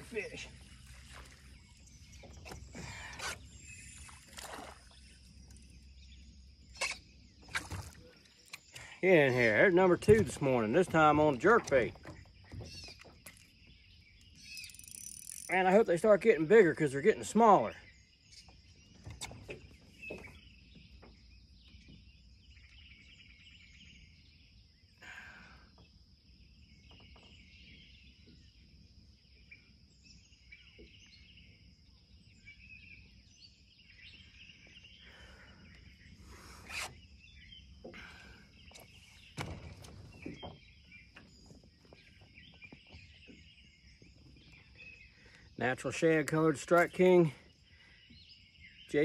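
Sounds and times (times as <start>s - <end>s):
birds calling faintly: 0.0s - 49.0s
clicks and knocks on a boat: 9.6s - 14.7s, 18.3s - 22.1s, 37.8s - 44.8s.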